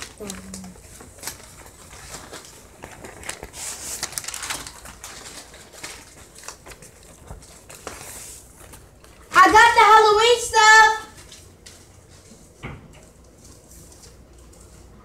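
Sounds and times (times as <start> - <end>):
rustling: 0.0 - 9.6.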